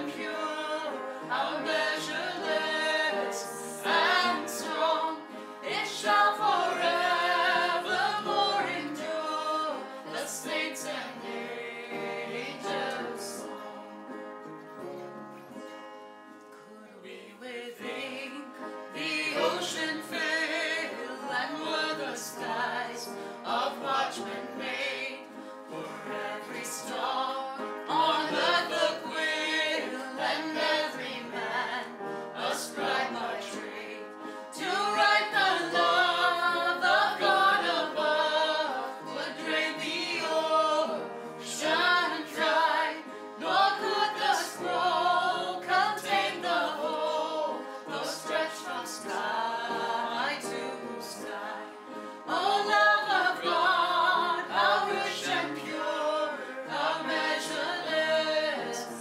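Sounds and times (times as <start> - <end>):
voices singing worship song: 0.0 - 14.2, 17.0 - 59.0
instrumental accompaniment: 0.0 - 17.2.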